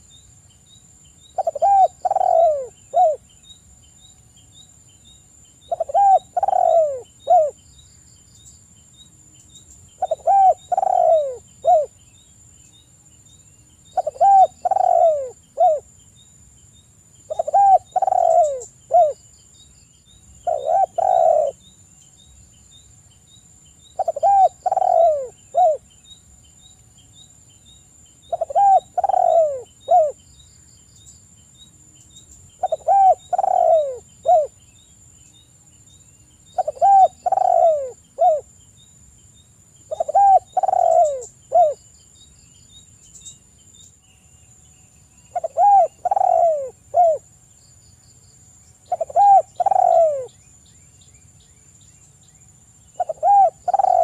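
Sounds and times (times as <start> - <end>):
dove cooing: 1.4 - 3.2, 5.7 - 7.6, 10.0 - 11.9, 13.9 - 15.9, 17.3 - 19.2, 20.4 - 21.6, 24.0 - 25.9, 28.3 - 30.2, 32.6 - 34.6, 36.6 - 38.5, 39.9 - 41.8, 45.3 - 47.2, 48.9 - 50.4, 53.0 - 54.0.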